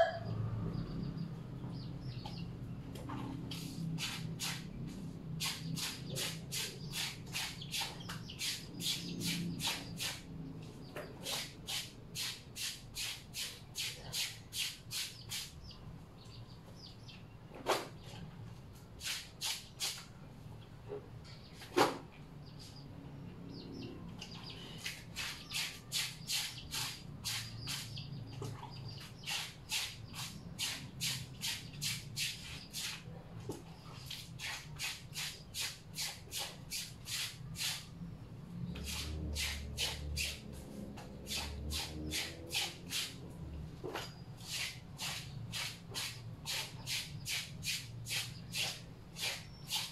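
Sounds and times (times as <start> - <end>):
clothes scrubbed by hand: 3.5 - 4.7, 5.4 - 10.3, 34.0 - 37.9, 38.8 - 49.9.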